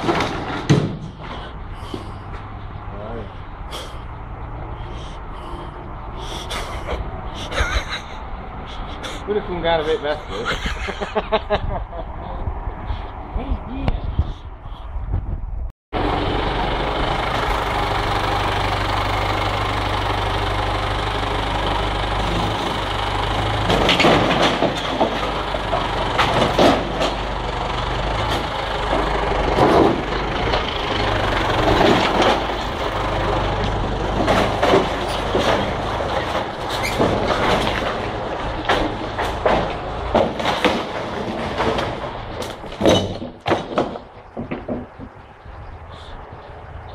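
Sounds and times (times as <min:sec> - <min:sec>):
tractor diesel engine idling: 0:16.0 - 0:43.4.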